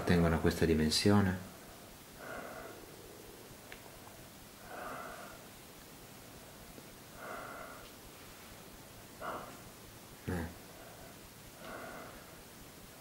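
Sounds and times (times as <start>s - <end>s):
person breathing slowly: 1.6s - 5.6s, 6.3s - 8.6s, 9.2s - 9.8s, 10.7s - 12.5s.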